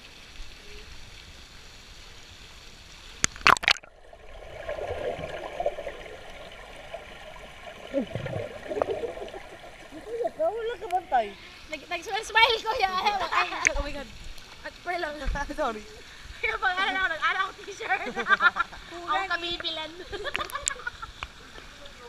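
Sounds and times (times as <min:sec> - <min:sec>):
water splashing: 0:02.3 - 0:18.4
gurgling bubbles underwater: 0:03.3 - 0:10.5.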